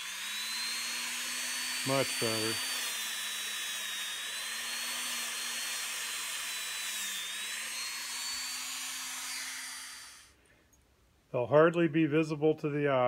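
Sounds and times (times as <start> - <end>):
rotary tool whining: 0.0 - 10.4.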